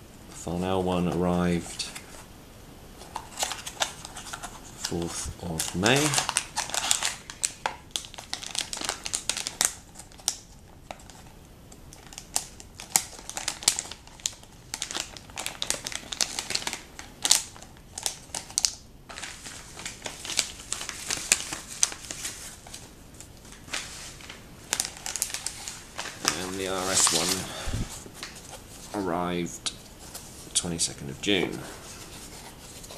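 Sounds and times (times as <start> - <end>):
plastic bag crinkling: 3.1 - 11.3, 12.0 - 29.2.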